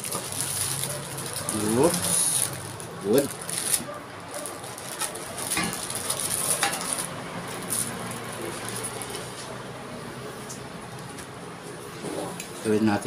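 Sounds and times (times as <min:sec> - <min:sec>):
plastic sheet crinkling: 0:00.0 - 0:09.6.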